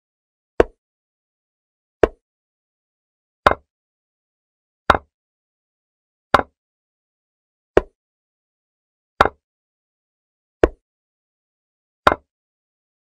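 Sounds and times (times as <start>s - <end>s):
wooden chess piece clacks: 0.6s - 0.8s, 2.0s - 2.2s, 3.5s - 3.7s, 4.9s - 5.1s, 6.4s - 6.6s, 7.8s - 8.0s, 9.2s - 9.4s, 10.6s - 10.8s, 12.1s - 12.3s.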